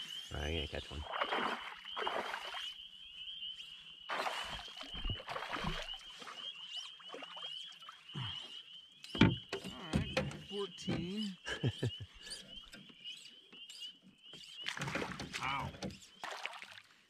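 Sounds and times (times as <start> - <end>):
water splashing: 1.0 - 2.7, 4.1 - 8.2, 14.6 - 17.0.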